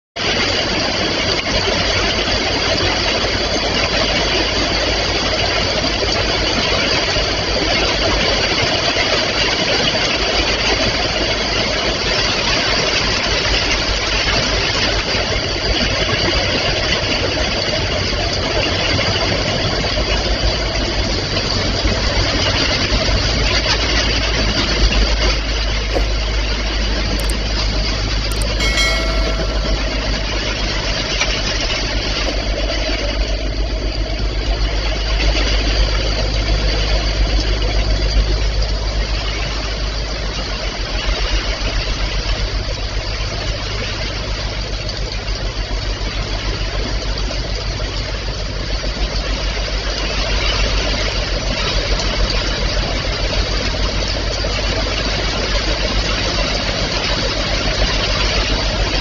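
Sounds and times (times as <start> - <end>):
short chime: 28.3 - 31.0.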